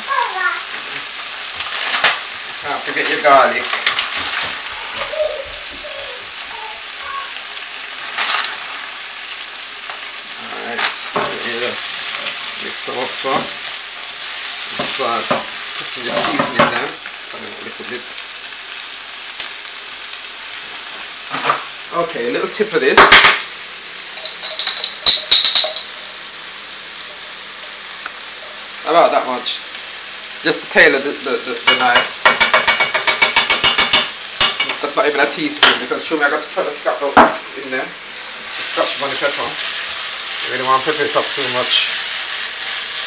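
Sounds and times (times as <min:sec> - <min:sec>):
vegetables sizzling in oil: 0:00.0 - 0:43.0
knife and glass jar clinking: 0:24.2 - 0:26.0.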